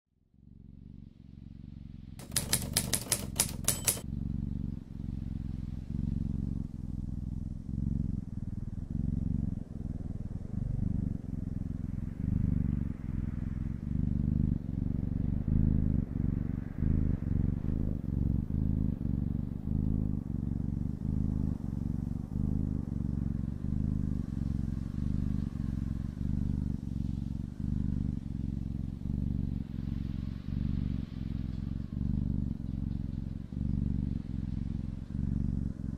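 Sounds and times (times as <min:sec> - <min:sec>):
cat purring: 0:01.5 - 0:35.9
sharp clicks: 0:02.2 - 0:04.0.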